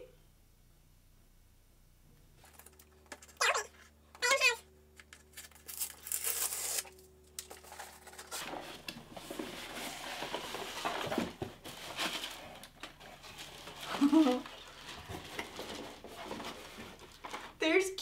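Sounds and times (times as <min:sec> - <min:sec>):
cardboard flaps rustling: 0:07.6 - 0:17.6
cardboard scraping: 0:07.7 - 0:17.5.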